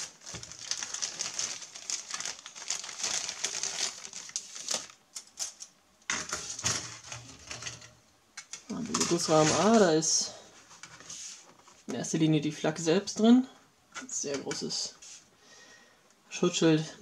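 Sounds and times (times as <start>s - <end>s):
plastic bag crinkling: 0.0s - 5.6s.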